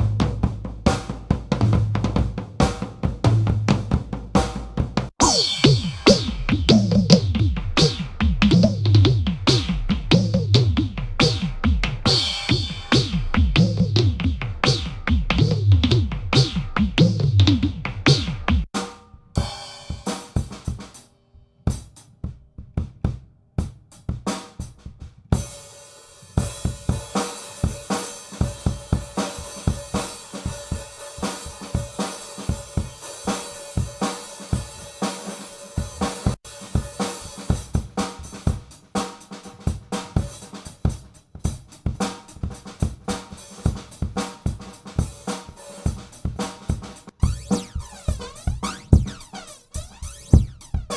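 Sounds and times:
drum kit beat: 0.0 - 21.1, 21.7 - 50.9.

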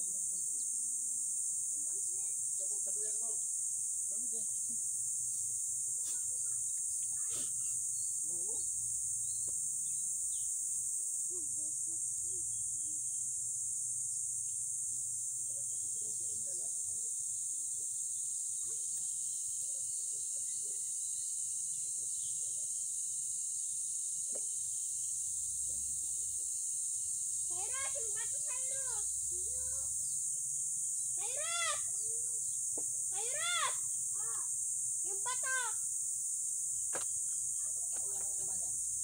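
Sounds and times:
faint distant voices: 0.0 - 10.3
insects droning: 0.0 - 39.0.

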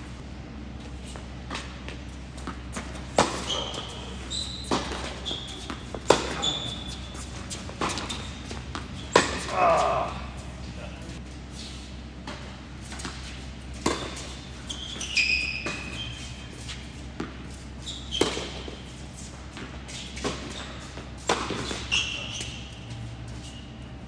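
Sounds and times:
sneakers squeaking on court: 0.0 - 24.0
racket hitting tennis ball: 1.1 - 9.6, 12.2 - 14.6, 15.6 - 22.5.

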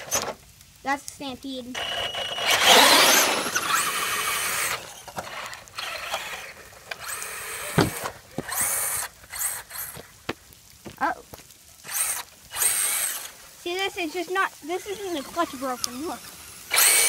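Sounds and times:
electric motor whining: 1.7 - 10.0, 11.8 - 17.0.

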